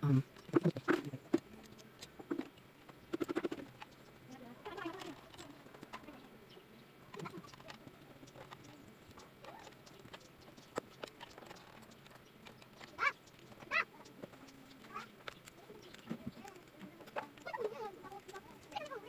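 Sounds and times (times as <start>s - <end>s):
short bird calls: 6.0s - 16.0s
cable plugs clicking and rustling: 7.1s - 19.0s.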